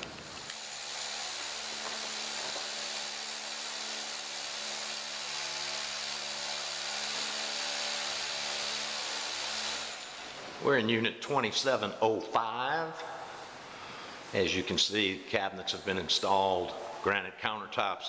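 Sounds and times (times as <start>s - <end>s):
electric drill boring into concrete: 0.0s - 10.4s.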